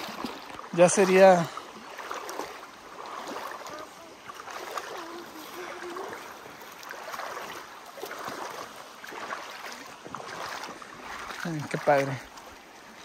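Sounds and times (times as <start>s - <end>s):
shallow stream flowing: 0.0s - 13.0s
water splashing from wading: 0.0s - 13.0s.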